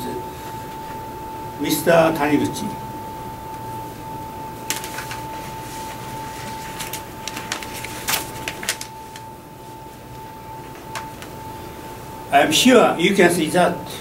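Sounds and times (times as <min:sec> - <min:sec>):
paper rustling and shuffling: 0:04.6 - 0:11.4.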